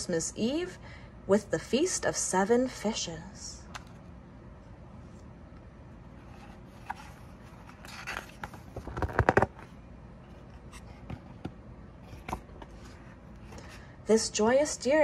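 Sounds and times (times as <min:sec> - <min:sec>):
book pages turning: 0:06.1 - 0:13.8
paper flaps and taps: 0:07.8 - 0:09.7.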